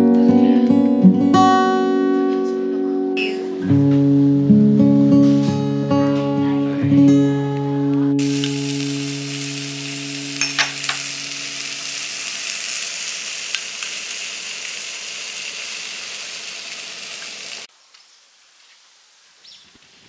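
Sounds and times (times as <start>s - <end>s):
food sizzling in a pan: 8.2s - 17.7s
small pops: 13.5s - 14.2s.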